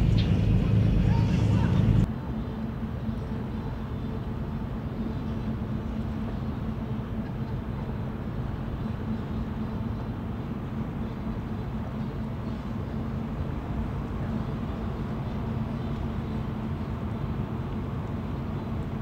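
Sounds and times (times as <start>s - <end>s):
diesel engine low drone: 0.0s - 19.0s.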